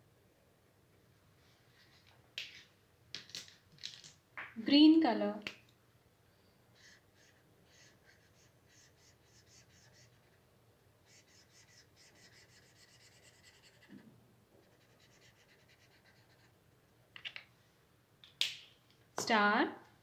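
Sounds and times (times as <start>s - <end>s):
marker scratching on paper: 6.8s - 10.4s, 11.1s - 14.0s, 14.6s - 16.6s.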